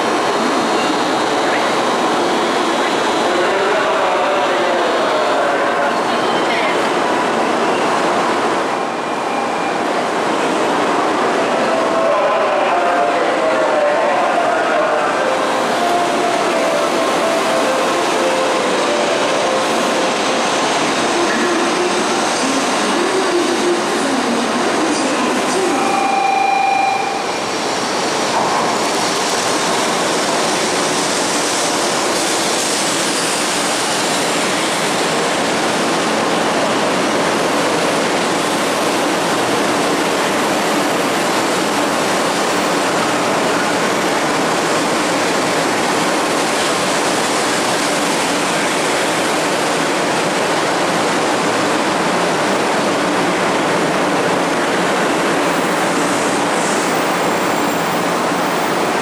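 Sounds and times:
train wheels and air rushing: 26.8s - 59.0s.

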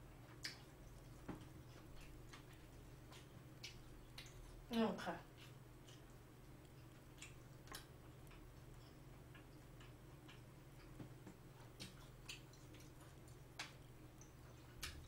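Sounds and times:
low steady hum: 0.0s - 15.0s
mouth chewing sounds: 0.2s - 15.0s.

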